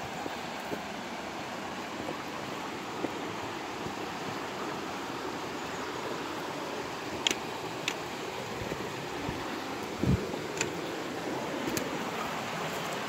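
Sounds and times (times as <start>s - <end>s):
creek water rushing: 0.0s - 13.0s.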